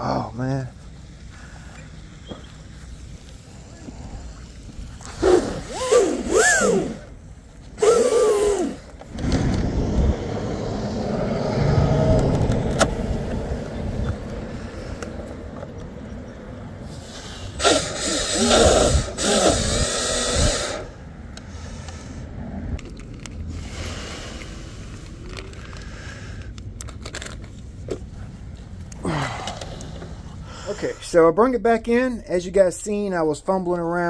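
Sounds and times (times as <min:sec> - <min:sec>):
rc boat motor whining: 0:03.8 - 0:14.2, 0:16.9 - 0:22.0.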